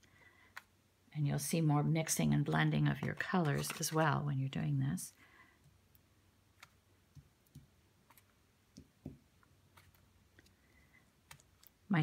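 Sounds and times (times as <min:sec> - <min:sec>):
faint paintbrush clicks and taps: 0:05.6 - 0:10.6.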